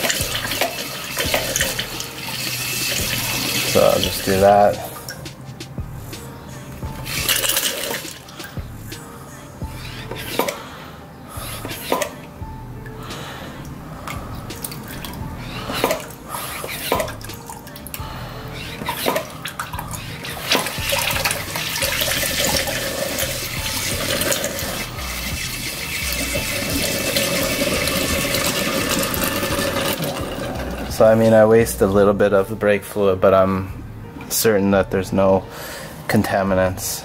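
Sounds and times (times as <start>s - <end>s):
fluid pouring into plastic jug: 20.5s - 31.0s.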